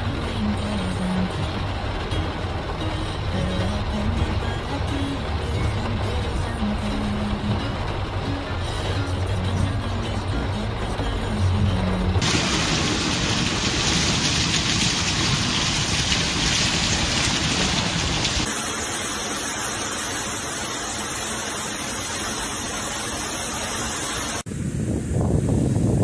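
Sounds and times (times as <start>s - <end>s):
heavy rain pouring: 0.0s - 24.5s
wind buffeting microphone: 24.5s - 26.0s.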